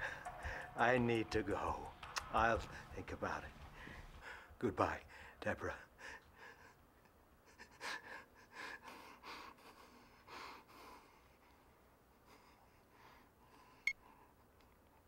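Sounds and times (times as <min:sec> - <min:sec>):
man breathing faintly: 0:00.0 - 0:00.8, 0:02.6 - 0:06.8, 0:07.7 - 0:14.6.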